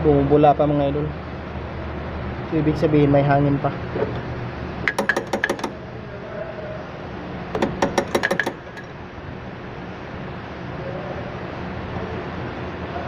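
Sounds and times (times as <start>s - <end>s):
wrench clicking: 4.9s - 5.8s, 7.6s - 9.0s.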